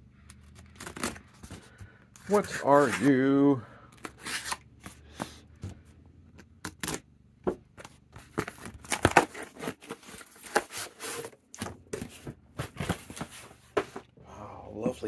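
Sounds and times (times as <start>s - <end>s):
cardboard being torn: 8.2s - 11.3s.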